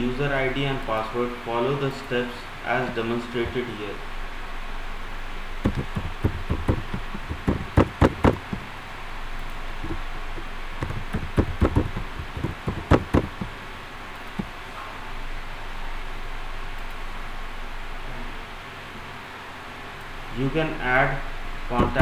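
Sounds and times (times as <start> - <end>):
computer keyboard typing: 5.6 - 8.7, 10.8 - 13.6, 21.8 - 22.0.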